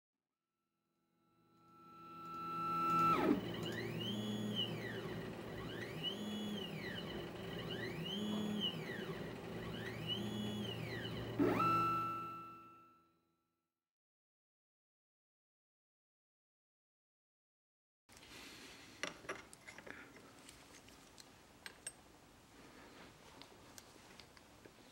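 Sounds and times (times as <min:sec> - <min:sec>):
electronic held tone: 0:01.6 - 0:13.0
rising and falling synth sweeps: 0:01.7 - 0:12.6.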